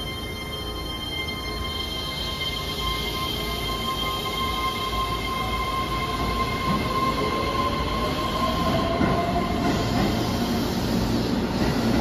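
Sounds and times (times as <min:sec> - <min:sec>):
electric train rumbling: 0:00.0 - 0:12.0.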